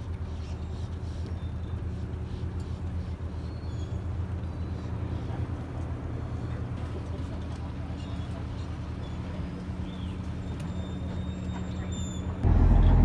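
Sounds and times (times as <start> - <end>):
boat diesel engines droning: 0.0 - 13.0.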